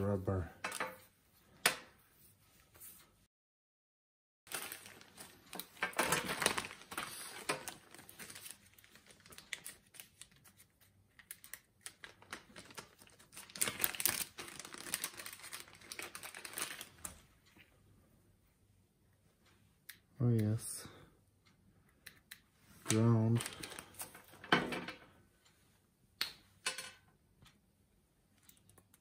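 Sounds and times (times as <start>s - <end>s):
plastic bags crinkling: 4.5s - 10.6s, 11.4s - 17.2s, 23.2s - 24.5s.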